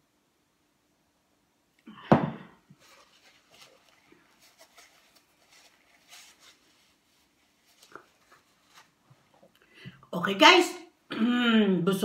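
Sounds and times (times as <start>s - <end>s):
paper napkin rustling: 2.7s - 9.4s.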